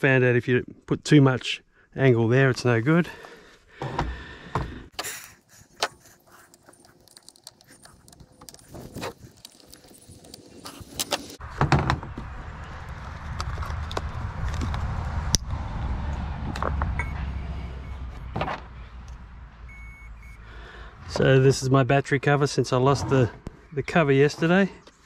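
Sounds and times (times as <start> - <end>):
small plastic parts clicking and rattling: 5.0 - 11.4
low rumble: 11.4 - 19.8.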